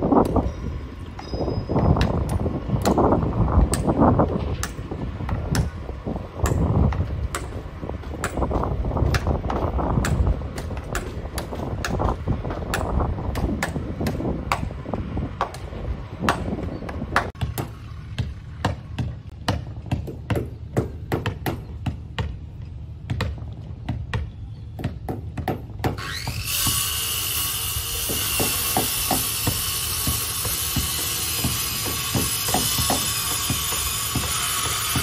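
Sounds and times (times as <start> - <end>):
power tool whining: 26.0 - 35.0
hammer blows on wooden hull: 28.0 - 35.0.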